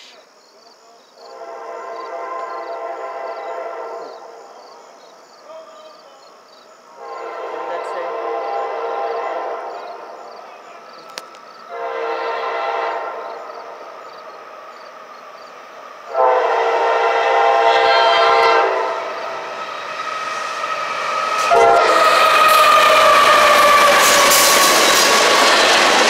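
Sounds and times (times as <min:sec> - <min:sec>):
train air horn blasts: 0:01.2 - 0:04.5, 0:06.9 - 0:10.3, 0:11.6 - 0:13.8, 0:16.0 - 0:25.2
train rumble and wheel noise: 0:01.2 - 0:26.0.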